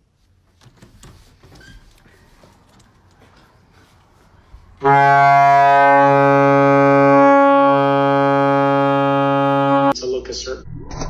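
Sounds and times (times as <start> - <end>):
faint low sounds: 4.6 - 10.0
loud horn-like note: 4.8 - 10.0.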